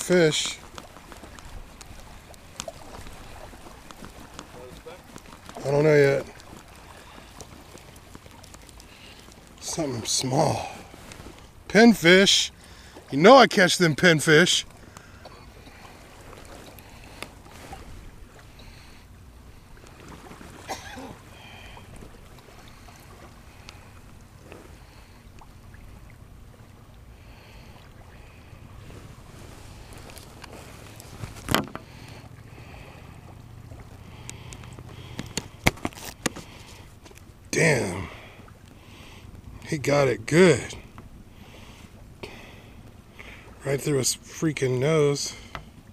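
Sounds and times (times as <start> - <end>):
knocks and rustles from handling: 30.9 - 31.9, 34.8 - 37.2.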